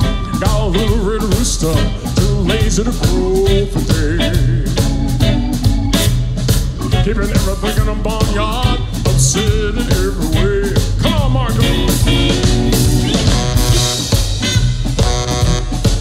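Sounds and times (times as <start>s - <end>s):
bending lead guitar line: 0.0s - 16.0s
blues band playing: 0.0s - 16.0s.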